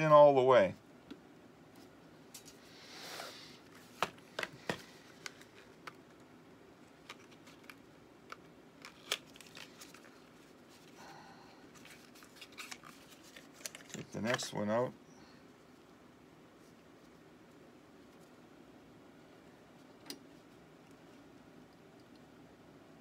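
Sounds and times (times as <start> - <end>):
soft rustle: 11.7 - 14.6.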